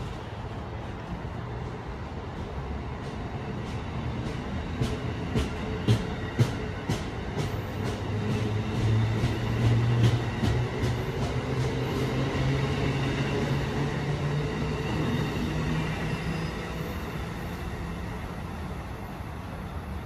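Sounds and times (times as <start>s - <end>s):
passing train rumble: 0.0s - 20.0s
train wheels clicking: 2.3s - 16.5s.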